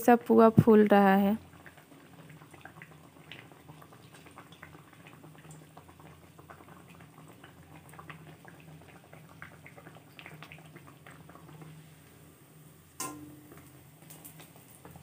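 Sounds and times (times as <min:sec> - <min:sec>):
oil sizzling and crackling: 0:00.0 - 0:15.0
low steady hum: 0:11.3 - 0:14.0.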